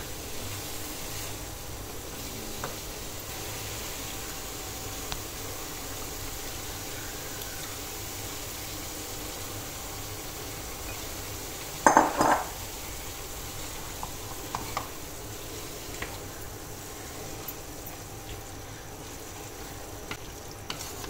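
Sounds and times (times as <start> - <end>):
food sizzling in a wok: 0.0 - 21.0
kitchenware clattering against pan: 11.8 - 12.6.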